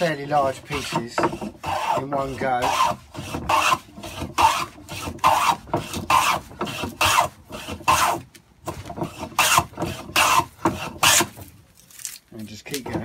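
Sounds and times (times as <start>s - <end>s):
hand plane shaving wood: 0.0s - 11.5s.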